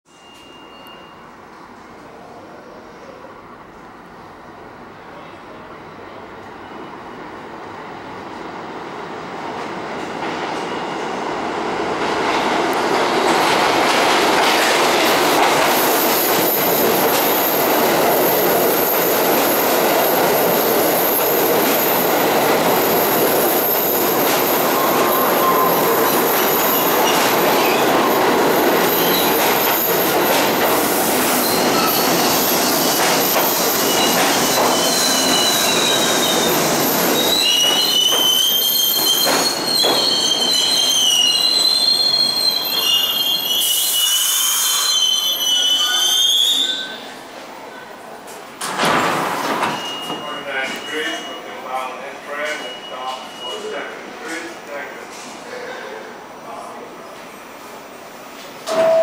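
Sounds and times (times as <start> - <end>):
metallic wheel and brake squeals: 0.1 - 1.4, 32.9 - 36.5, 37.1 - 47.1, 49.6 - 51.6, 52.3 - 53.9
subway train wheels rumbling: 0.1 - 59.0.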